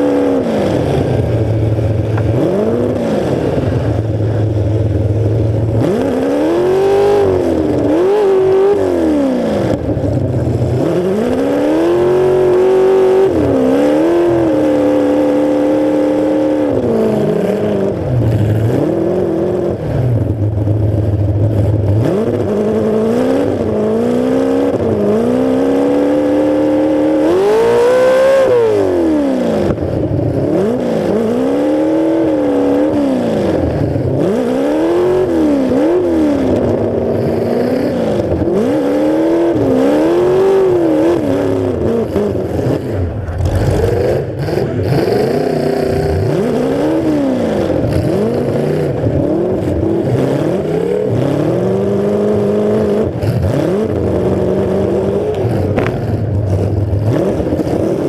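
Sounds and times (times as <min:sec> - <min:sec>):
car engine revving hard: 0:00.0 - 0:58.0.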